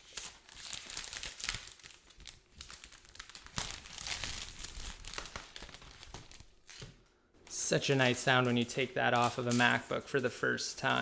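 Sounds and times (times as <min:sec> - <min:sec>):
plastic wrap crinkling: 0:00.0 - 0:07.0.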